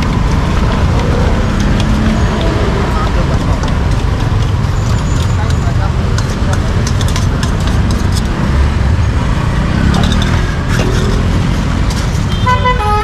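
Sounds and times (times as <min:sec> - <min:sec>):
rumble of passing traffic: 0:00.0 - 0:13.0
vehicle horn: 0:12.3 - 0:13.0.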